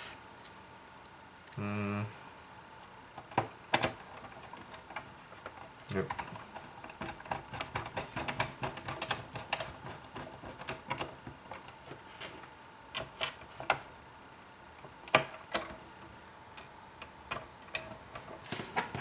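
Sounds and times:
clicks and taps on plastic: 3.2 - 11.7.

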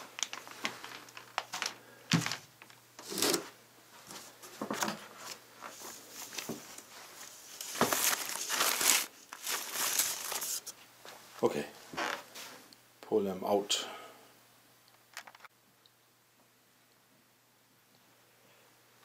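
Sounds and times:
plastic packaging crinkling: 0.0 - 3.3, 5.2 - 10.7, 15.1 - 15.5.

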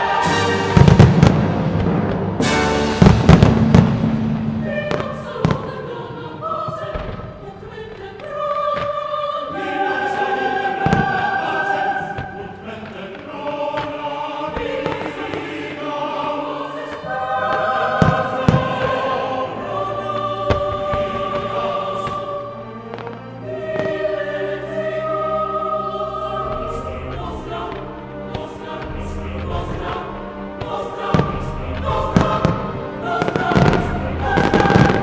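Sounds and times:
fireworks banging: 0.0 - 5.7, 10.8 - 19.2, 20.4 - 23.2, 26.4 - 35.0
choir singing long chords: 0.0 - 35.0.

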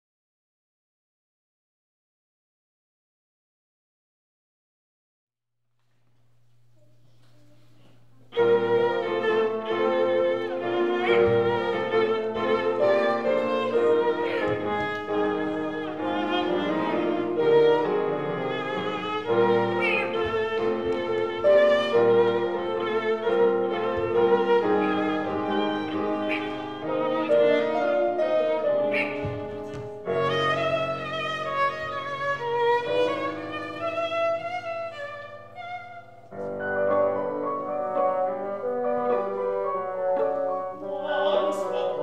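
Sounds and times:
faint low hum: 5.8 - 9.0
string ensemble playing: 8.3 - 42.0.

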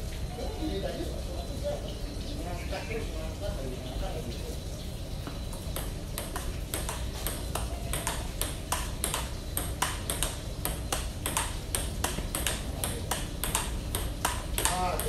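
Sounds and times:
table tennis ball hitting paddles: 5.2 - 15.0.

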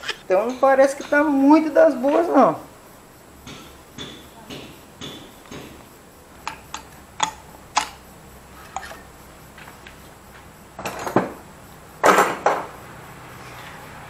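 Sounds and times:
metal engine parts clattering: 8.6 - 9.8, 10.8 - 11.4.

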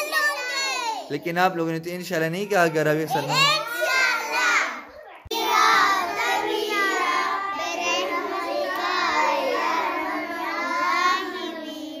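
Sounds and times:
girls singing together: 3.7 - 12.0.

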